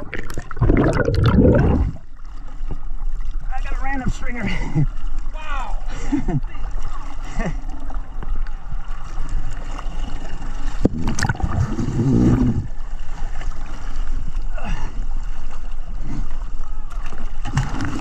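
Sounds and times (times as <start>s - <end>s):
rush of water: 0.0s - 18.0s
water sloshing around boat: 0.0s - 18.0s.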